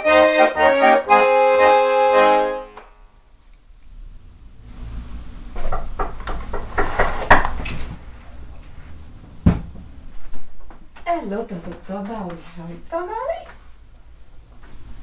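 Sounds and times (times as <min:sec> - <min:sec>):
knock on wooden cupboard: 0:09.4 - 0:09.7.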